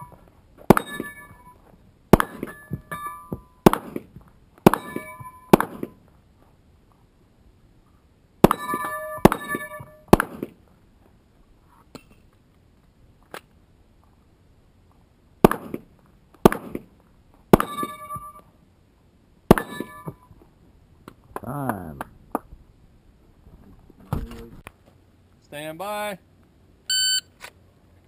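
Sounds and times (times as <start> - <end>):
steel plate clanging: 0.0 - 1.6, 4.7 - 5.6, 8.4 - 10.1, 19.5 - 20.3.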